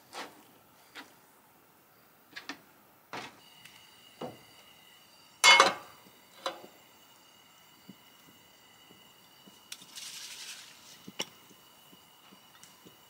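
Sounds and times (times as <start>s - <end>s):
cookware clatter: 5.4s - 5.9s
cookware knocking and clinking: 5.4s - 5.9s.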